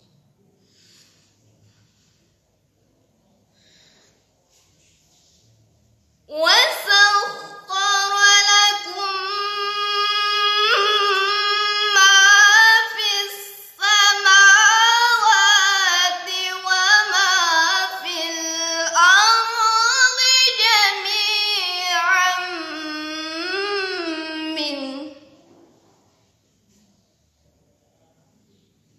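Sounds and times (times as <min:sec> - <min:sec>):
girl reciting melodically: 0:06.3 - 0:25.4.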